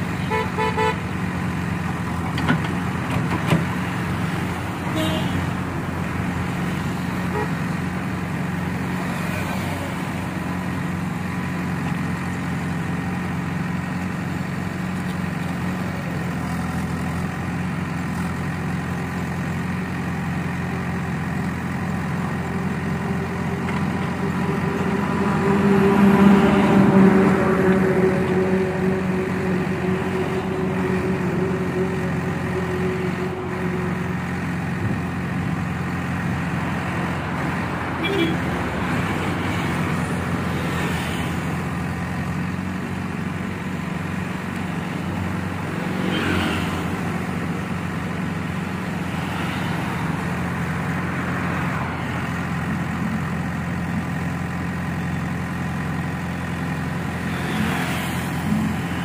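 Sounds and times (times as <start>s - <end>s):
truck passing: 0.0s - 11.5s, 21.6s - 59.0s
diesel engine running: 0.0s - 59.0s
vehicle horn toots: 0.2s - 1.1s, 4.9s - 5.5s, 38.0s - 38.6s.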